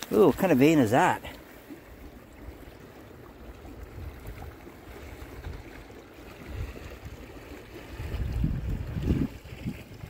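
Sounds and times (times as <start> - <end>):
wind buffeting microphone: 3.6 - 10.0.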